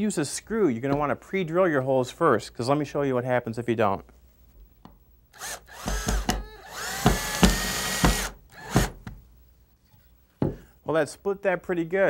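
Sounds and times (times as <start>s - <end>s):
power drill motor whining: 5.4s - 9.0s.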